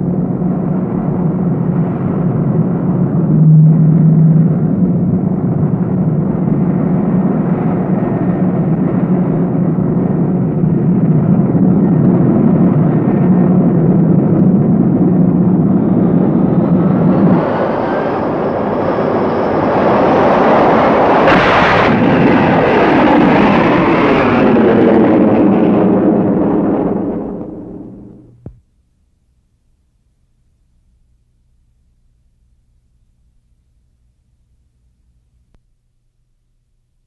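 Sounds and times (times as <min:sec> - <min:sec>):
jet fighter engines roaring: 0:00.0 - 0:28.5
jet engine whine: 0:00.0 - 0:28.6
sharp loud blast: 0:03.2 - 0:06.2, 0:20.9 - 0:28.6.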